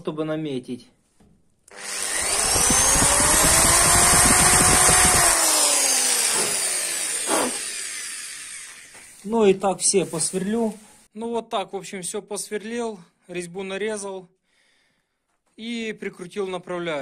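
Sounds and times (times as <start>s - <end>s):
electric drill cutting into steel: 1.7s - 9.2s.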